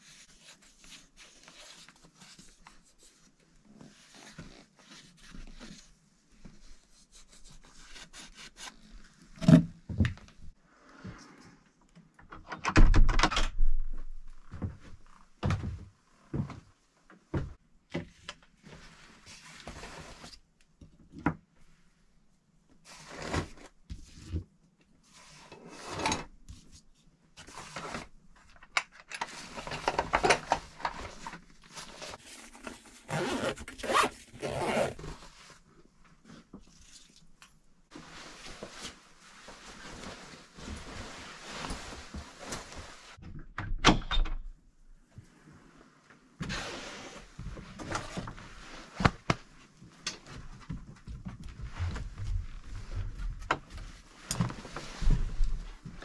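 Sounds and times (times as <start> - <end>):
fabric rustling: 31.7 - 35.6, 37.9 - 43.2
bootlaces rubbing: 32.2 - 35.1
zipper zipping: 32.9 - 35.2.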